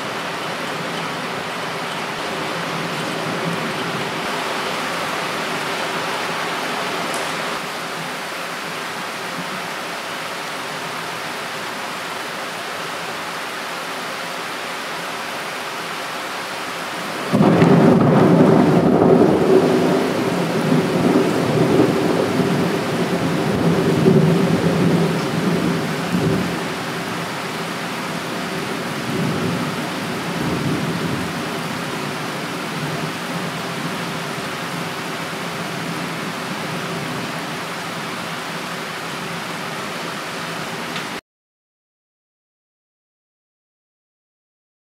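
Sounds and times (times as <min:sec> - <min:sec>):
thunder rumbling: 0:00.0 - 0:07.6, 0:17.2 - 0:26.8
heavy rain falling: 0:00.0 - 0:41.2.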